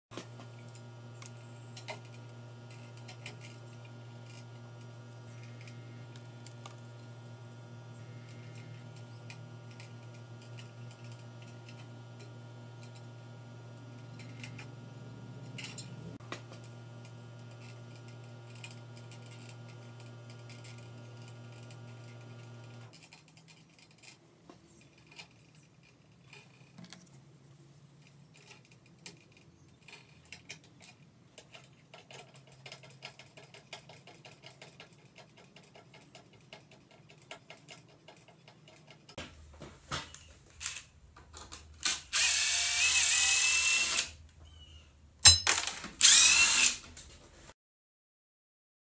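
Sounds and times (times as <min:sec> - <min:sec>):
electrical wires clicking and rattling: 0:28.0 - 0:42.1
cordless drill whining: 0:41.8 - 0:44.2, 0:45.6 - 0:47.0.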